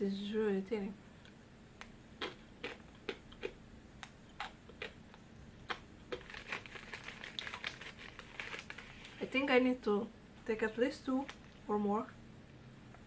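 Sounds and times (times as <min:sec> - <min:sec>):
biscuit stick crunching: 0:01.8 - 0:09.2
foil snack packet crinkling: 0:06.1 - 0:09.2.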